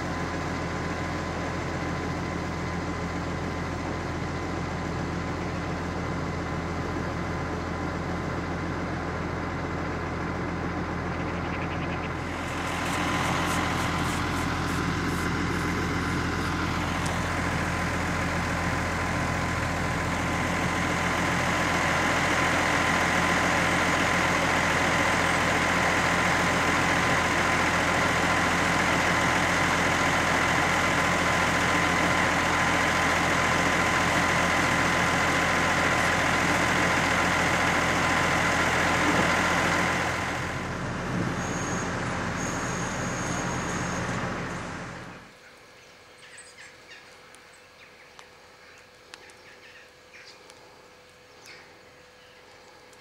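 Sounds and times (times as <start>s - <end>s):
tractor diesel engine running: 0.0s - 45.4s
high whine: 10.9s - 21.0s.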